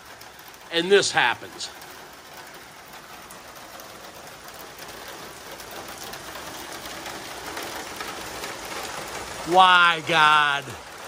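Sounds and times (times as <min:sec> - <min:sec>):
rain falling on pavement: 0:00.0 - 0:11.0.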